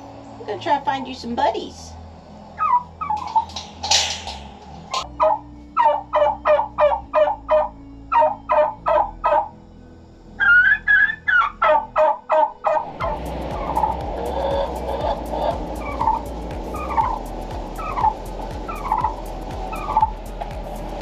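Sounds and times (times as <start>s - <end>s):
turkey gobbling: 2.6s - 4.0s, 4.9s - 9.5s, 10.4s - 20.2s.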